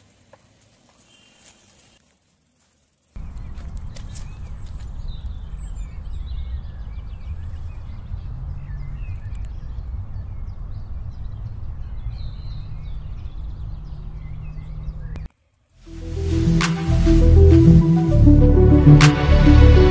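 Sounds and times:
steady low rumble: 3.2s - 14.6s
birds chirping: 3.2s - 15.3s.

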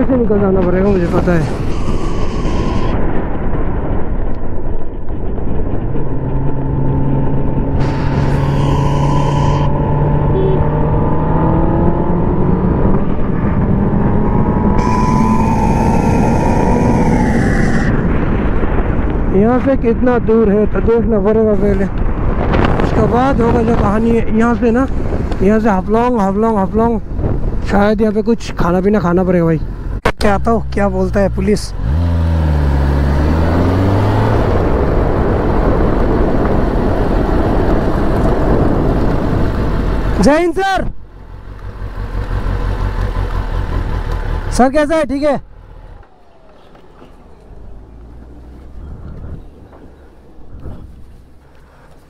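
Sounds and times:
motorcycle engine accelerating: 0.0s - 19.3s, 29.7s - 40.2s, 41.1s - 51.8s
heavy wind rush: 0.0s - 41.1s, 44.5s - 52.0s.

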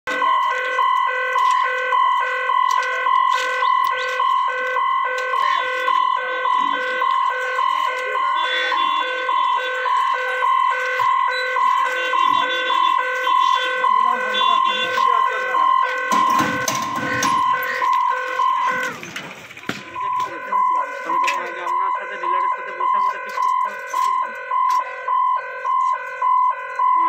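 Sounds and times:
steady high tone: 0.1s - 19.2s
level crossing warning beeps: 0.1s - 27.0s.

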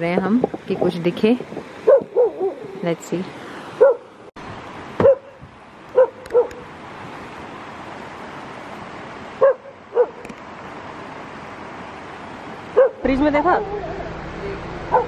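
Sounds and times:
animal barking: 1.8s - 2.8s, 3.8s - 4.1s, 5.0s - 6.6s, 9.4s - 10.2s, 12.8s - 14.0s.

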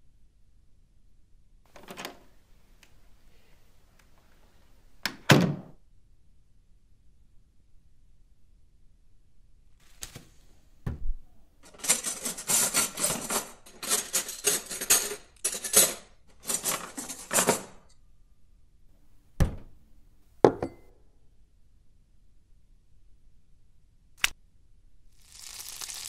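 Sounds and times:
jars knocking on counter: 20.5s - 20.8s
plastic bag crinkling: 25.2s - 26.0s.

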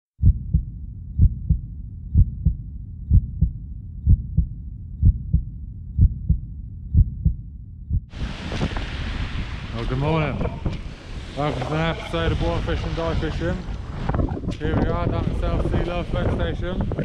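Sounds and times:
heartbeat double thumps: 0.2s - 8.2s, 13.9s - 17.0s
steady low rumble: 0.2s - 17.0s.

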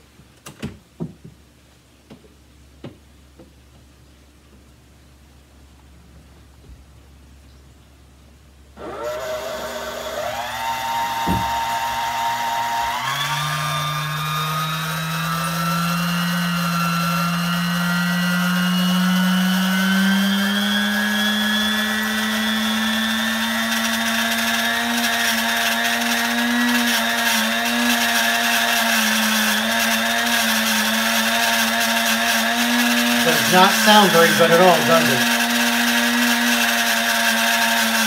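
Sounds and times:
stand mixer motor running: 8.8s - 38.0s.

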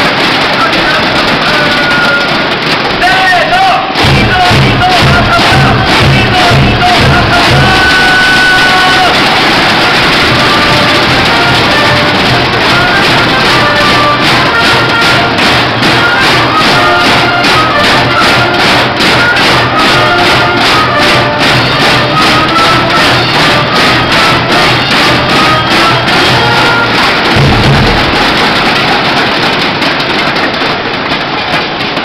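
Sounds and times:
brass band playing: 0.0s - 32.0s
drums beating: 0.0s - 32.0s
people clapping rhythmically: 0.0s - 32.0s
bass drum hit: 4.0s - 7.8s, 23.3s - 29.1s.

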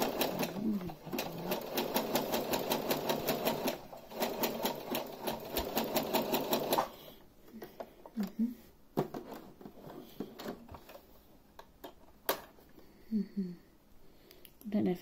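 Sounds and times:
sewing machine stitching: 0.0s - 6.9s.

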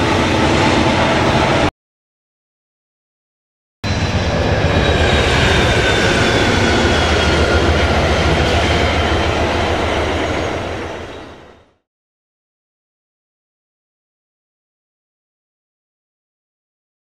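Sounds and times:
train wheels rumbling on rails: 0.0s - 1.7s, 3.8s - 11.8s.

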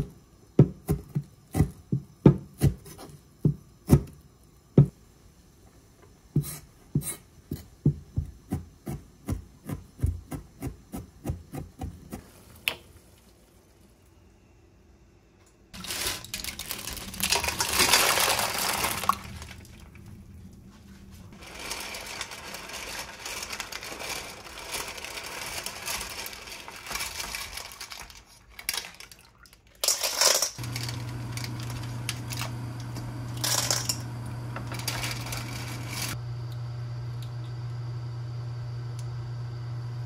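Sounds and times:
shells clattering in metal pot: 21.9s - 32.5s, 33.4s - 34.0s
steady low hum: 30.6s - 40.0s.

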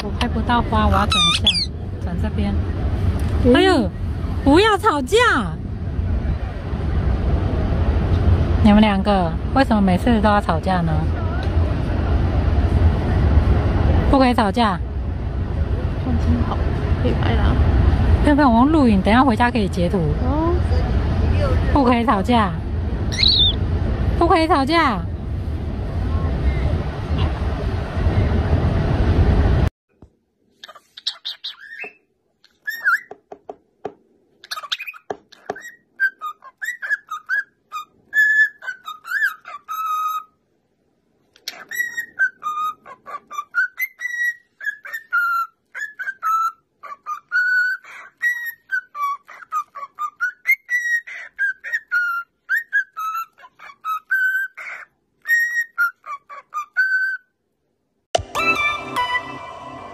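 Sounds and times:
cockatiel whistling a tune: 23.2s - 23.6s, 31.0s - 32.0s, 32.6s - 33.1s, 34.5s - 40.3s, 41.5s - 57.3s
bird chirps and clicks: 30.6s - 33.3s, 34.4s - 35.8s, 41.3s - 42.1s.

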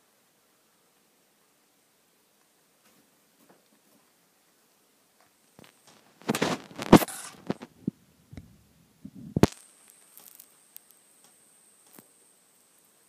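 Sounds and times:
crackles and sharp clicks: 5.2s - 8.5s, 9.2s - 12.9s
rabbit chewing: 9.1s - 12.2s.

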